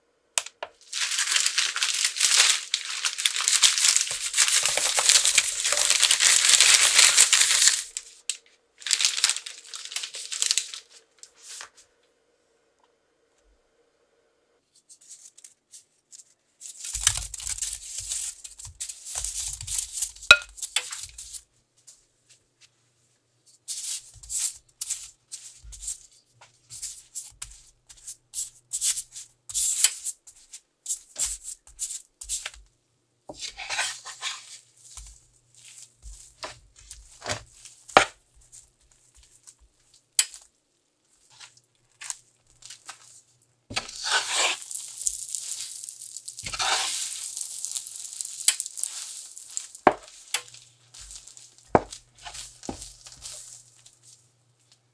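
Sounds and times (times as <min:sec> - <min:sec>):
spatula scraping a frying pan: 0:33.3 - 0:34.6, 0:43.7 - 0:44.8, 0:46.4 - 0:47.3.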